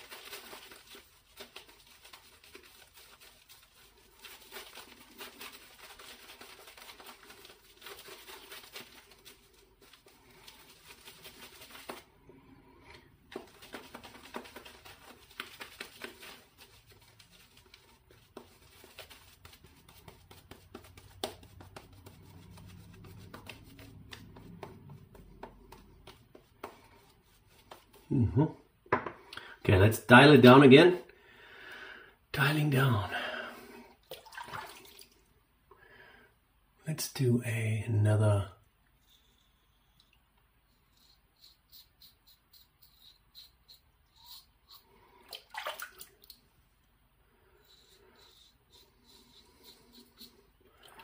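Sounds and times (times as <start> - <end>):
shaving brush swishing lather: 0.0 - 12.3, 13.2 - 28.1, 40.7 - 46.1, 47.4 - 51.0.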